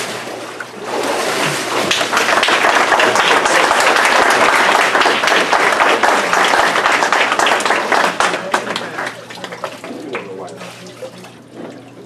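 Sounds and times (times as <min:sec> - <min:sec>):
crowd applauding: 0:01.8 - 0:10.4.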